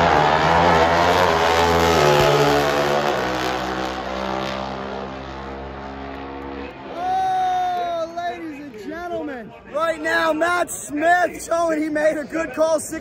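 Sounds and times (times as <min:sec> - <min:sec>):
drag motorcycles at full throttle: 0:00.0 - 0:08.8.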